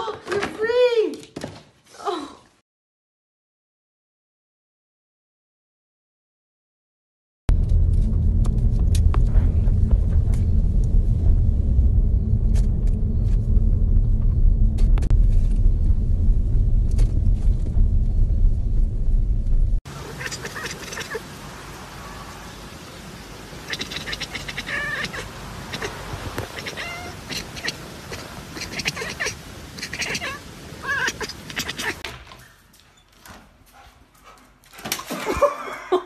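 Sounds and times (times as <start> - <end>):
road rumble inside car: 7.5 - 19.8
cat calling: 19.9 - 21.4, 23.6 - 32.1.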